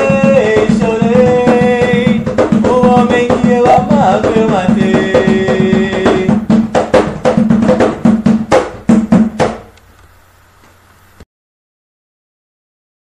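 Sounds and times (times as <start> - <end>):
drumming: 0.0 - 9.8
faint hiss: 0.0 - 11.3.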